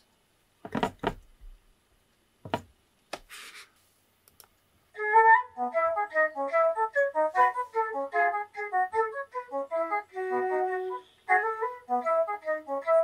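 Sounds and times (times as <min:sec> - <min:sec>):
clicks: 0:04.2 - 0:04.7
melody of short clear notes: 0:05.0 - 0:13.0.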